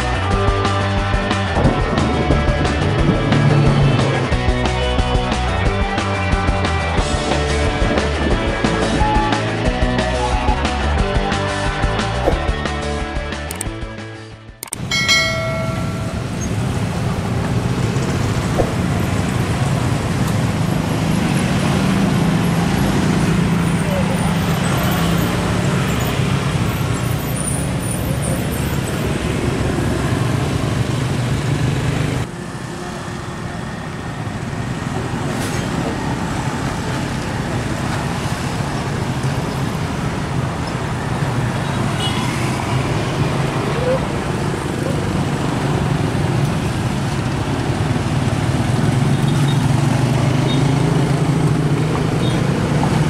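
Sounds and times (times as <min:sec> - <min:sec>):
road traffic rumble: 0:00.0 - 0:13.8, 0:14.6 - 0:53.0
vehicles passing: 0:00.0 - 0:53.0
ringing tone: 0:14.8 - 0:16.5.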